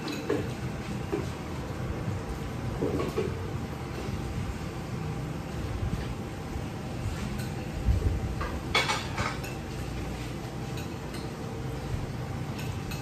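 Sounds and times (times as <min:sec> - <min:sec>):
cutlery clinking on plates: 0:00.0 - 0:01.3, 0:08.4 - 0:09.8, 0:10.7 - 0:11.4, 0:12.5 - 0:13.0
low background hum: 0:00.0 - 0:13.0.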